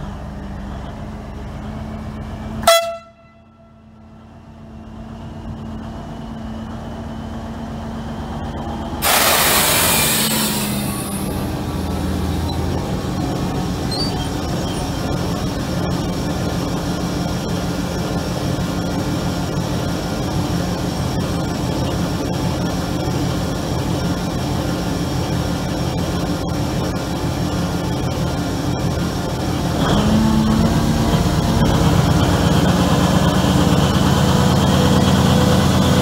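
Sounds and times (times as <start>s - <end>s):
diesel locomotive engine running: 0.0s - 36.0s
compressed air hiss: 9.0s - 11.4s.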